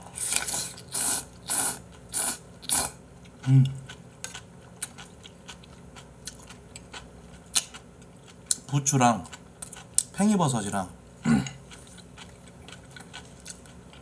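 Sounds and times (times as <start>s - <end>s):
person slurping noodles: 0.1s - 3.0s
faint chewing: 0.2s - 10.2s, 11.4s - 14.0s.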